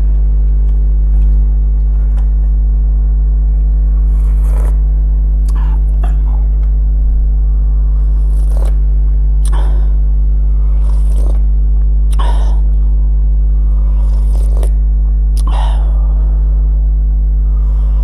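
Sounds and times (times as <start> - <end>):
electrical hum: 0.0 - 18.0
person chewing: 10.7 - 11.4.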